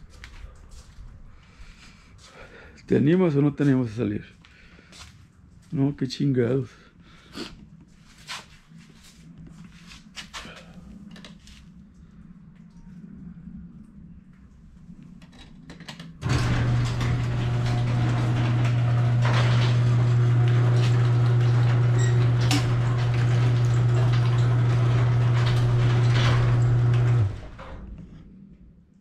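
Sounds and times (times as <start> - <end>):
garage door rattling on tracks: 16.2 - 28.0
garage door opener motor humming: 16.2 - 28.2.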